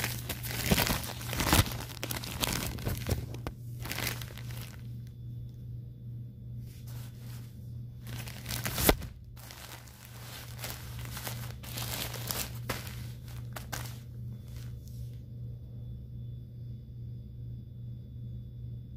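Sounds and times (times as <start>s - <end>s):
plastic diaper crinkling: 0.0s - 4.9s, 6.8s - 14.9s
steady low hum: 0.0s - 18.9s.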